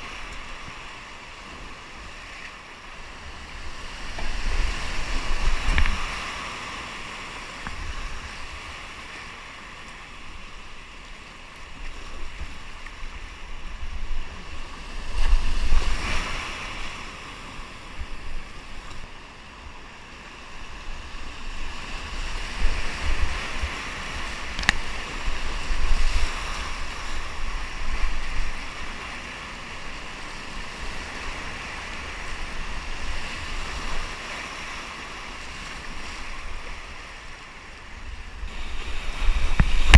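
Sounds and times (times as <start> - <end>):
wind buffeting on microphone: 3.3 - 6.6, 20.6 - 29.9, 37.9 - 39.9.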